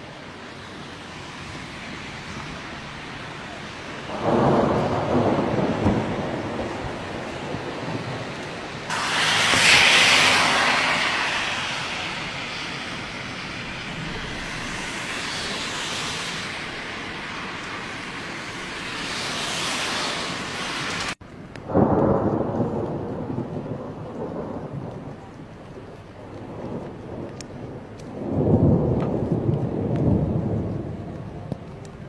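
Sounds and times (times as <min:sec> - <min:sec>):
heavy rain hissing: 0:00.0 - 0:21.2
rolling thunder: 0:01.4 - 0:21.1, 0:21.7 - 0:32.0.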